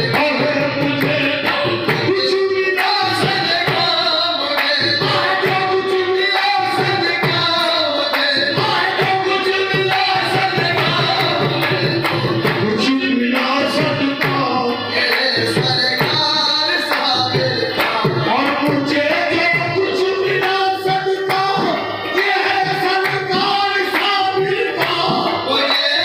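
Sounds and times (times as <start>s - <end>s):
drum percussion: 0.0s - 26.0s
person singing: 0.0s - 26.0s.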